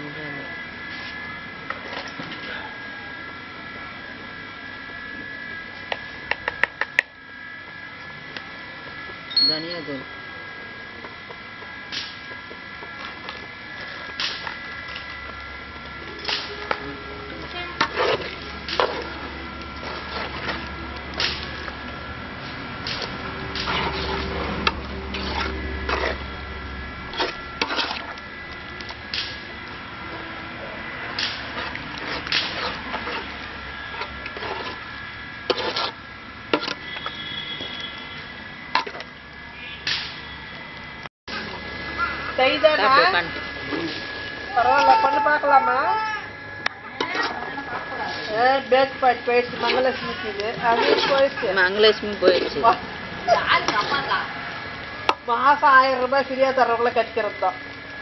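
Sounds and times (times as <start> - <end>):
steady high hum: 0.0 - 58.0
spoon scraping rustles: 17.4 - 20.7, 31.5 - 34.9, 35.5 - 36.0, 49.4 - 52.9
spoon scraping metal pan: 35.5 - 36.0, 49.4 - 52.8.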